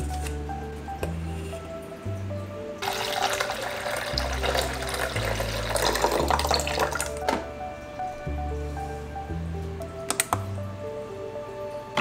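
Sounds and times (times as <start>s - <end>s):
background music with bass line: 0.0s - 3.1s, 4.0s - 12.0s
water pouring: 2.8s - 7.4s.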